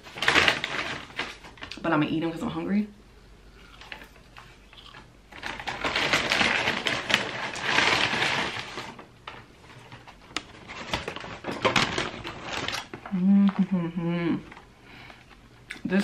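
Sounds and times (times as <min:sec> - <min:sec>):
paper packaging rustling: 0:00.0 - 0:01.8, 0:05.3 - 0:13.6.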